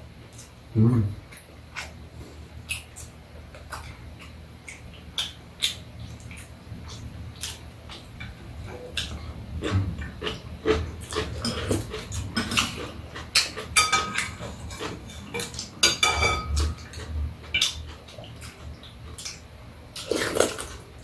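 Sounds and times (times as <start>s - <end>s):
people chewing: 0.2s - 21.0s
utensils clinking on bowls: 11.2s - 17.1s.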